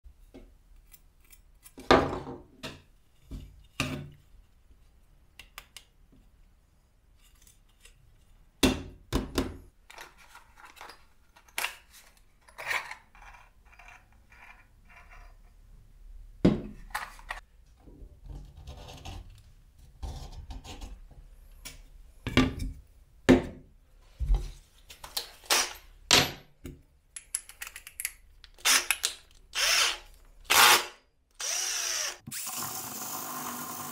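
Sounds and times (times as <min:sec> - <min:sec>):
objects knocking on a workbench: 0:01.9 - 0:02.8, 0:16.4 - 0:16.8.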